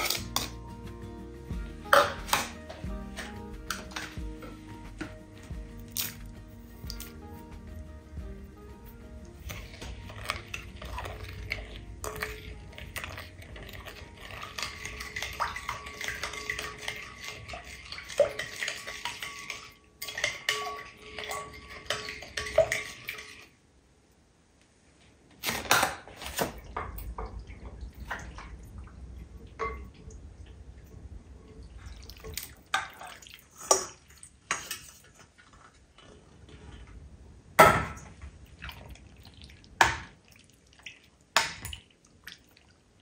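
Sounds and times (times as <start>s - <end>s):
spoon stirring in glass bowl: 1.8s - 6.2s, 9.3s - 23.5s, 31.8s - 37.0s.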